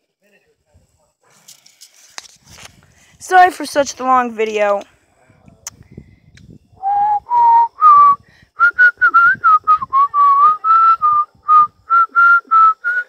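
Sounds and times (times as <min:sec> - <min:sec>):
person whistling a tune: 0:06.8 - 0:13.0.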